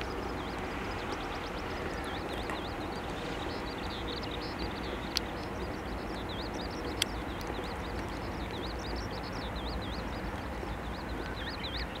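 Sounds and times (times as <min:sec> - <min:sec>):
low background rumble: 0:00.0 - 0:12.0
songbird singing: 0:00.0 - 0:12.0.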